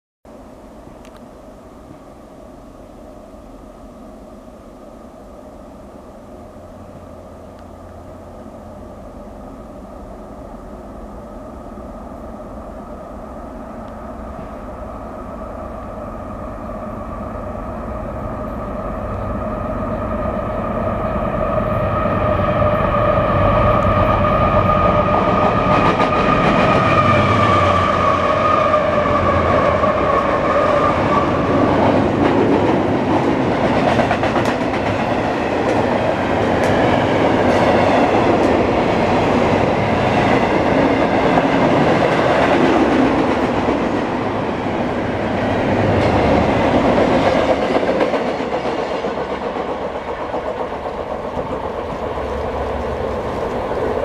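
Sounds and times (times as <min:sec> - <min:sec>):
diesel locomotives approaching: 0:00.3 - 0:54.0
train wheels clickety-clack: 0:24.6 - 0:54.0.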